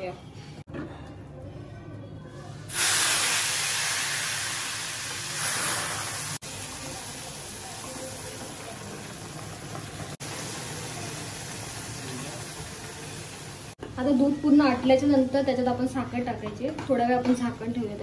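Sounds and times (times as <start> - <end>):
milk sizzling in hot pan: 2.7 - 13.8.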